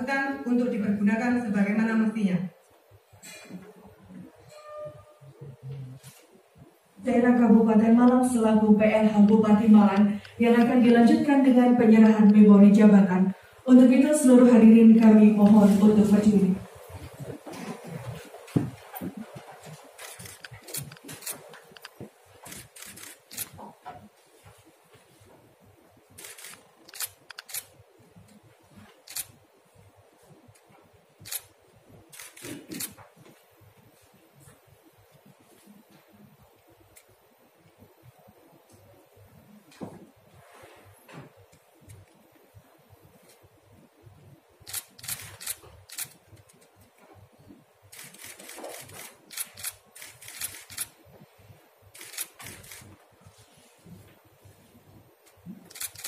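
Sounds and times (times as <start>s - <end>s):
camera shutters clicking: 19.7s - 23.6s, 26.2s - 27.7s, 29.0s - 29.4s, 31.2s - 31.5s, 32.1s - 33.0s, 44.6s - 46.7s, 47.9s - 51.0s, 51.9s - 52.9s, 55.7s - 56.0s.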